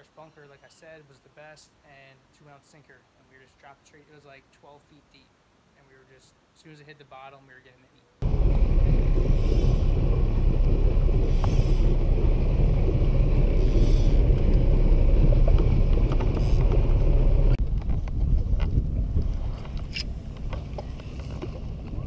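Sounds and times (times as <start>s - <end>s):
wind buffeting microphone: 8.2s - 22.0s.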